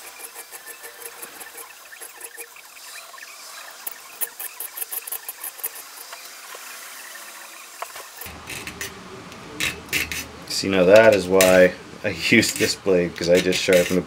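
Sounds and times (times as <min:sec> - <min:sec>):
file rasping saw teeth: 0:13.4 - 0:14.0.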